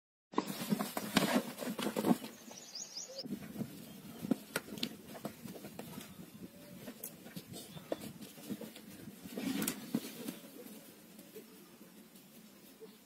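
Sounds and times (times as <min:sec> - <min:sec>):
bulls fighting with clashing horns: 0:00.3 - 0:02.6, 0:03.3 - 0:11.2
bird chirps: 0:02.2 - 0:04.3.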